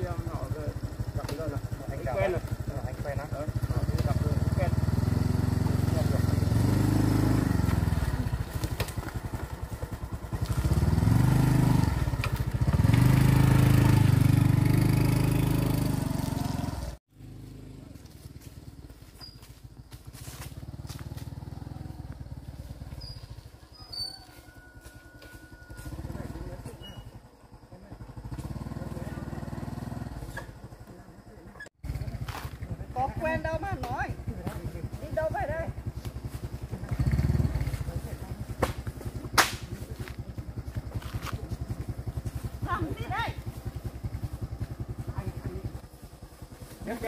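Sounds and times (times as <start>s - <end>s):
small engine puttering: 0.0s - 47.0s
sharp crack: 38.6s - 39.9s.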